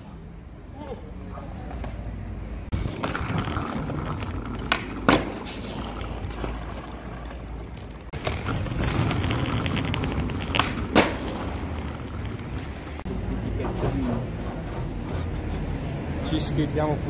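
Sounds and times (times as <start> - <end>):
skateboard wheels rolling on concrete: 0.0 - 17.0
skateboard clacking on concrete: 2.8 - 12.7.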